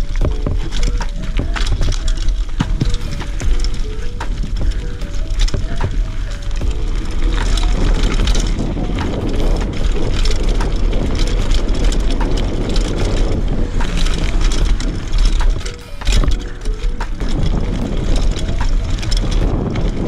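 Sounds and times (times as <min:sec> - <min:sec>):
bike rattling: 0:00.0 - 0:20.0
tyres crunching over dirt and rock: 0:00.0 - 0:20.0
wind buffeting microphone: 0:00.0 - 0:20.0.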